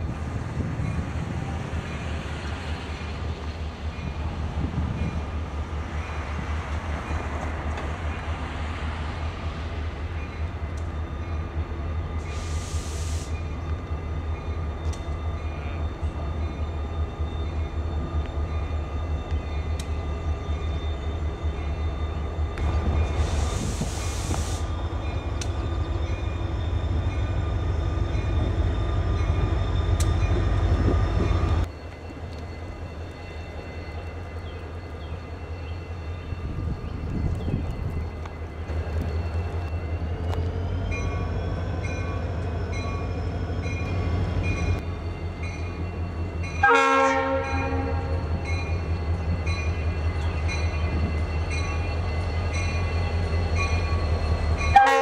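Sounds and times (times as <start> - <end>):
diesel locomotive engine whining: 0.0 - 55.0
distant locomotive: 0.0 - 55.0
short air hisses: 12.2 - 13.4, 23.1 - 24.7.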